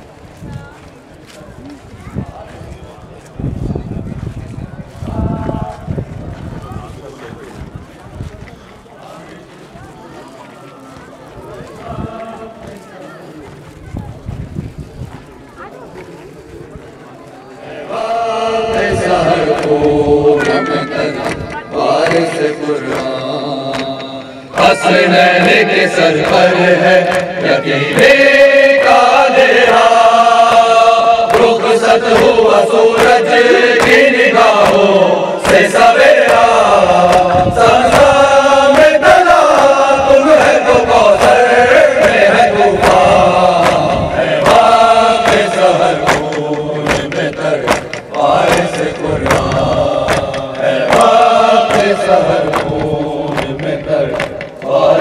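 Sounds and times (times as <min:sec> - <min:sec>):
crowd of men chanting: 0:11.5 - 0:13.0, 0:17.6 - 0:55.0
chest-beating slaps: 0:29.6 - 0:39.8, 0:40.4 - 0:55.0.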